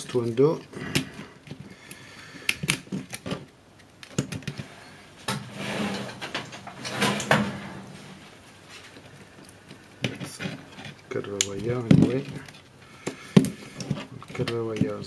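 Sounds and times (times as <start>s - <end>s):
plastic clicks and rattles: 2.5s - 4.7s
rustling scrape: 4.5s - 9.0s.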